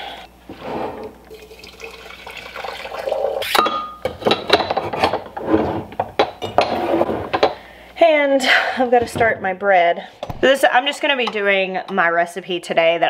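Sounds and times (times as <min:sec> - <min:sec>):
water pouring into coffee press: 0:01.2 - 0:03.4.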